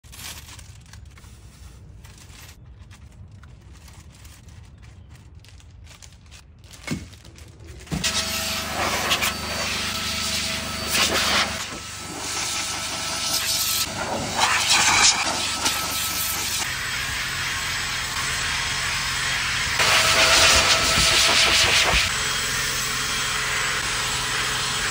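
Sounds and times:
vacuum cleaner rushing air: 0:07.9 - 0:24.9.

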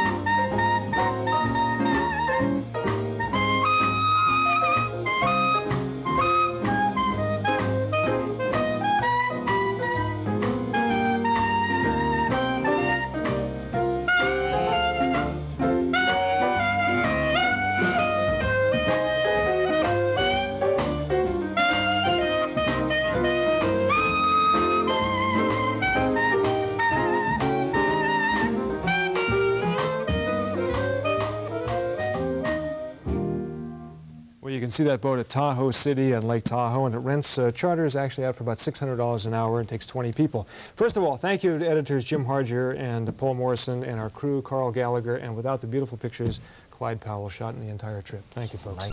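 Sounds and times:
drum kit beat: 0:00.0 - 0:33.7
saxophone melody: 0:00.0 - 0:34.3.

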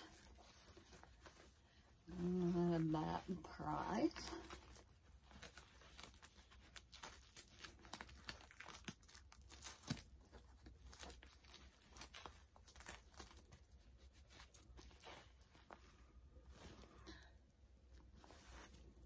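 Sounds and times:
plastic packaging crinkling: 0:02.2 - 0:15.7.

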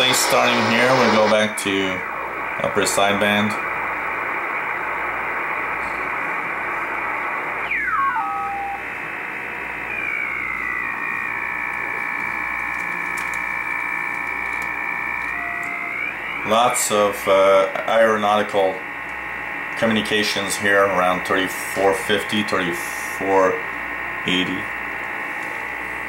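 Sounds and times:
radio whistles: 0:00.0 - 0:02.5, 0:05.3 - 0:17.4
radio band noise hiss: 0:00.0 - 0:26.0.

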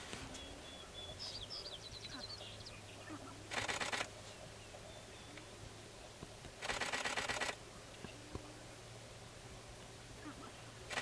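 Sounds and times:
rapid camera shutter clicks: 0:03.5 - 0:04.1, 0:06.6 - 0:07.6.

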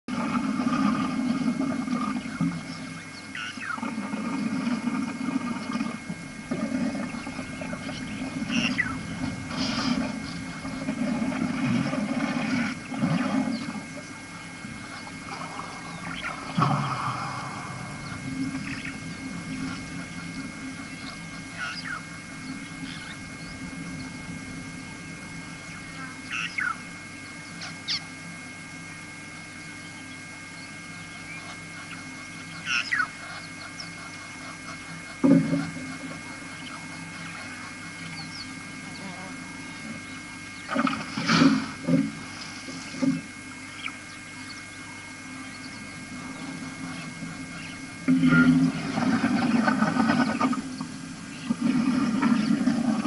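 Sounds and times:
steady low hum: 0:00.0 - 0:53.0
sharp bird calls: 0:02.2 - 0:03.8, 0:07.0 - 0:10.8, 0:14.8 - 0:24.3, 0:25.6 - 0:28.2, 0:29.8 - 0:34.2, 0:36.3 - 0:40.8, 0:43.7 - 0:48.5
low rushing noise: 0:07.1 - 0:12.9, 0:14.6 - 0:27.2.

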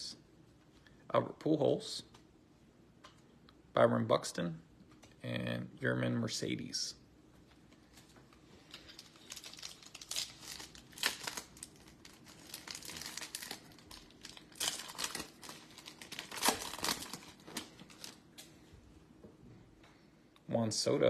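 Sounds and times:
plastic wrapper crinkling: 0:07.7 - 0:18.5.

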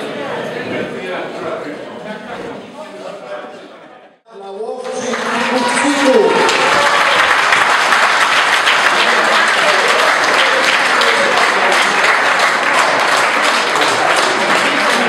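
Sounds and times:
crowd applauding: 0:04.8 - 0:15.0.

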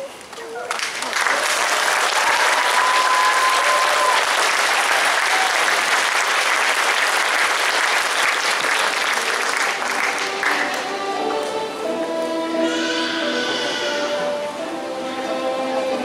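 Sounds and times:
audience applauding: 0:00.7 - 0:10.9.

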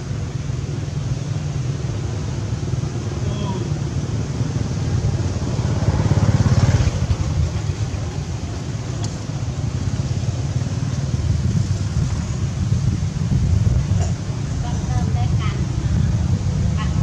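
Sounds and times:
motorbike engine rumbling: 0:00.0 - 0:17.0.

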